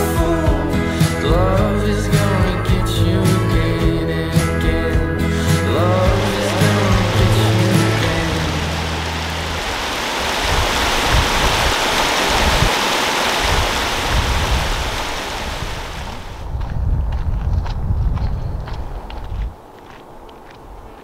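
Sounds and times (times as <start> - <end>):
wind rumble on microphone: 5.7 - 12.8, 13.4 - 21.0
stream rushing over rocks: 5.8 - 16.4.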